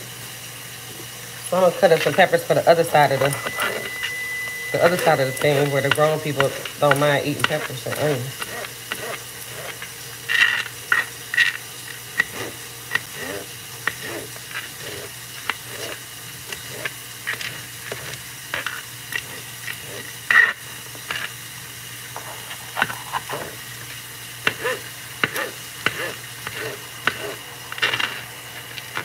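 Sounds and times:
knife chopping on cutting board: 0:04.8 - 0:18.8, 0:24.4 - 0:28.2.

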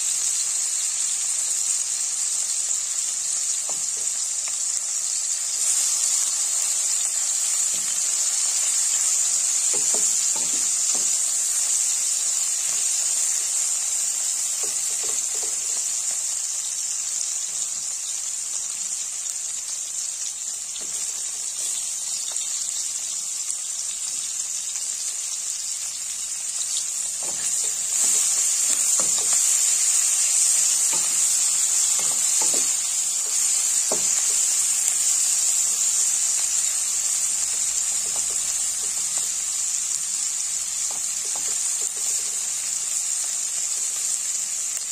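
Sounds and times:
fish sizzling in oil: 0:00.0 - 0:44.9
wooden spatula knocking pan: 0:09.6 - 0:11.8, 0:14.5 - 0:16.0, 0:27.2 - 0:34.7, 0:37.6 - 0:39.1, 0:40.9 - 0:42.2.

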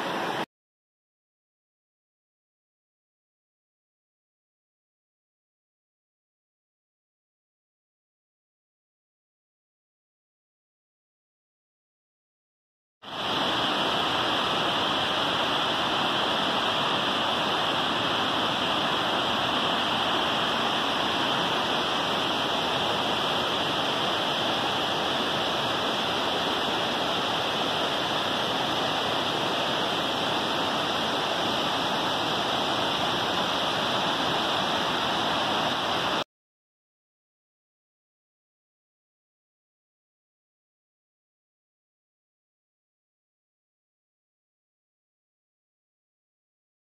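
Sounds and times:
creek rushing over rapids: 0:00.0 - 0:00.5, 0:13.1 - 0:36.2.

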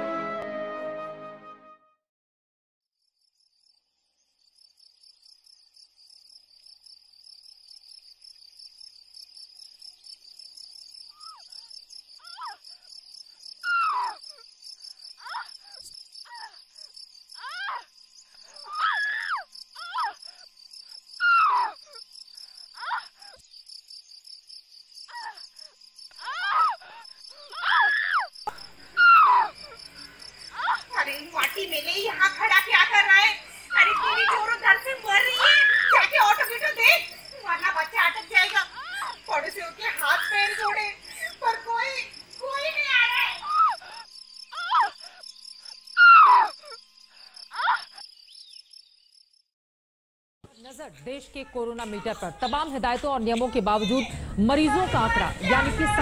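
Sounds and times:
crickets chirping: 0:03.0 - 0:49.4
woman crying out and moaning: 0:26.2 - 0:28.3.

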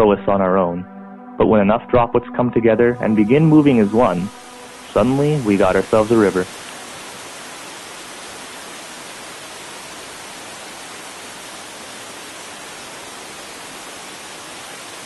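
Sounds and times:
waterfall rushing: 0:03.0 - 0:15.0.

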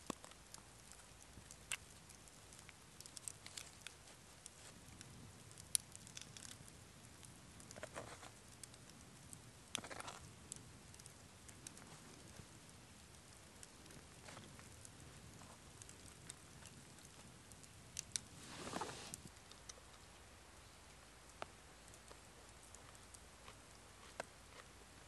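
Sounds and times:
soft rustle of dropped onion: 0:18.3 - 0:19.3.

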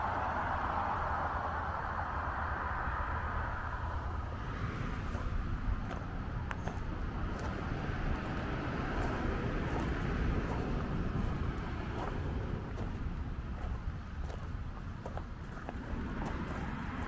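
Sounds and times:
traffic rumble: 0:00.0 - 0:17.0
footsteps on gravel: 0:05.0 - 0:17.0.

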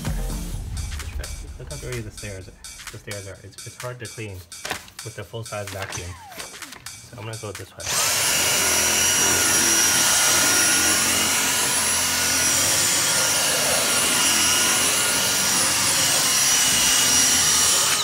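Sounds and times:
vacuum cleaner motor whine: 0:07.8 - 0:18.0.

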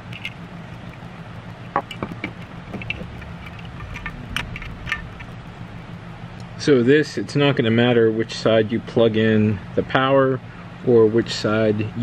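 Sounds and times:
small parts clicking and tapping: 0:00.0 - 0:01.1, 0:01.7 - 0:05.3
steady low hum: 0:00.0 - 0:12.0.

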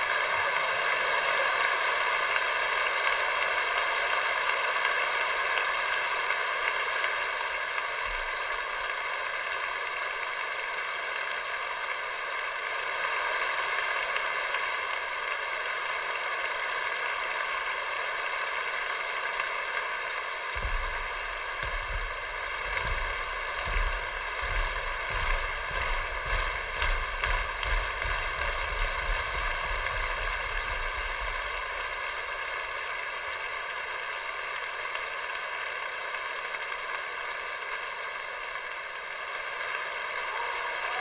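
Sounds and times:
static-like hiss: 0:00.0 - 0:40.4
low rumbling bumps: 0:20.6 - 0:31.7.

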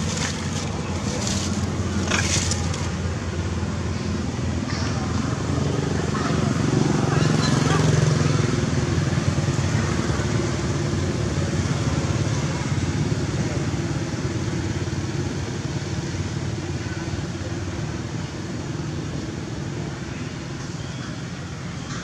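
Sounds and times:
motorbike engine running: 0:00.0 - 0:03.1.

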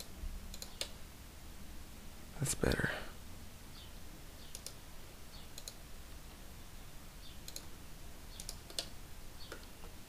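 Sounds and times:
mouse and keyboard clicks: 0:00.0 - 0:01.0, 0:04.5 - 0:04.8, 0:05.5 - 0:05.8, 0:07.4 - 0:07.7, 0:08.3 - 0:10.0
faint low hum: 0:00.0 - 0:10.0.

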